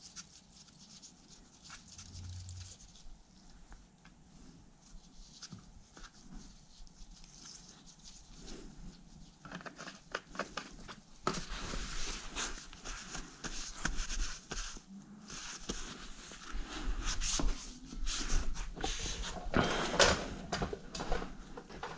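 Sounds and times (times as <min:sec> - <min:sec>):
towel rubbing and rustling: 0:11.3 - 0:19.5.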